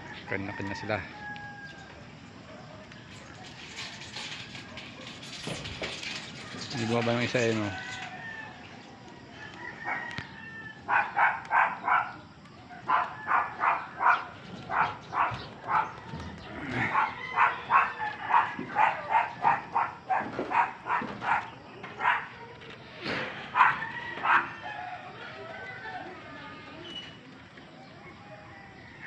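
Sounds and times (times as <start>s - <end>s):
dog barking: 10.9s - 12.2s, 12.8s - 16.1s, 16.7s - 22.4s, 23.5s - 24.6s.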